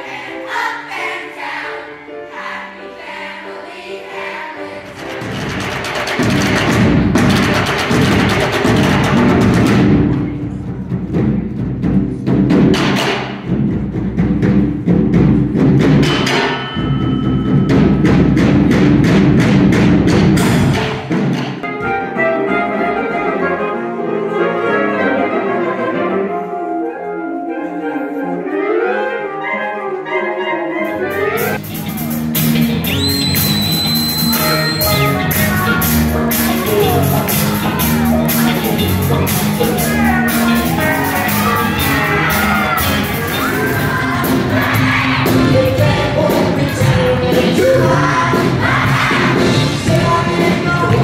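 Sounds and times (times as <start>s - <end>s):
scrap metal drums pounding: 5.0s - 16.8s
band with drums and electric guitar: 5.0s - 22.2s, 31.0s - 51.0s
saxophone quintet playing: 21.6s - 31.6s, 32.9s - 43.8s.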